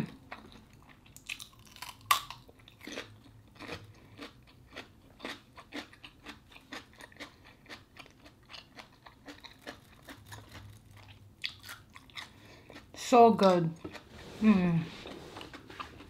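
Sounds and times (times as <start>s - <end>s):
crunchy chewing: 0.3s - 13.0s
cucumber crunching bite: 1.2s - 8.1s.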